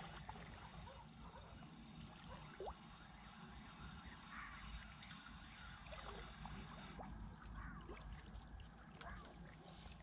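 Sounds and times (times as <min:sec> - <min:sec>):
rapid high ticking: 0:00.0 - 0:06.9
water trickling and lapping: 0:00.0 - 0:10.0.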